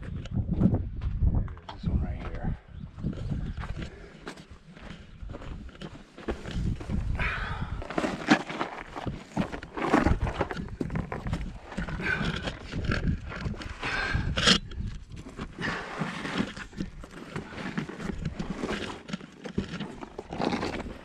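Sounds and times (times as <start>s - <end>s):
scraping against rock: 7.8s - 21.0s.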